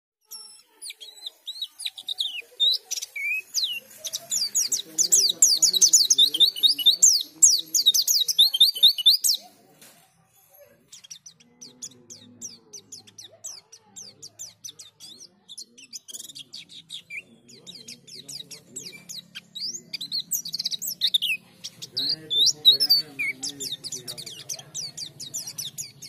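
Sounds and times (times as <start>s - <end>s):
bird chirping: 0.2s - 26.0s.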